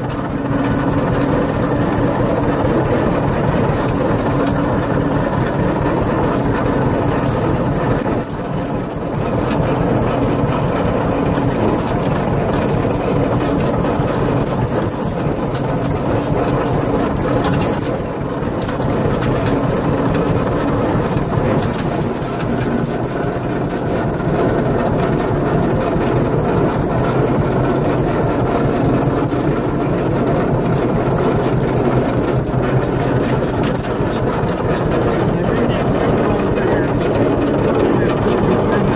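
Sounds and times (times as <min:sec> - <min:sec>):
tractor engine running: 0:00.0 - 0:38.9.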